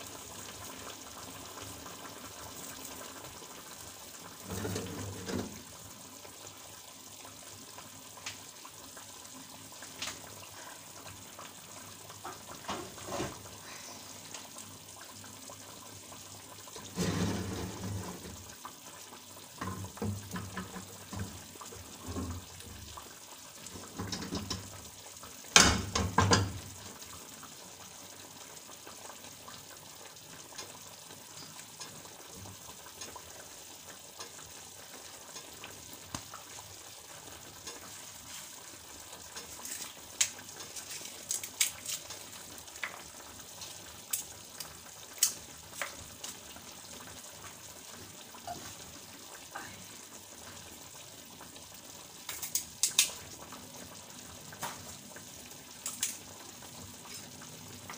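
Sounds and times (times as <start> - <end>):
food sizzling in a pan: 0.0 - 57.9
pan clattering on stove: 4.4 - 5.7, 12.2 - 13.4, 16.8 - 18.5, 19.6 - 22.9, 23.7 - 24.8, 25.5 - 26.7.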